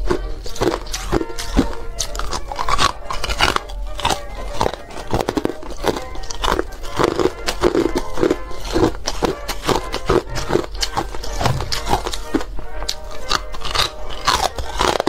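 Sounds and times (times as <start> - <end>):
ice crunched between teeth: 0.0 - 15.0.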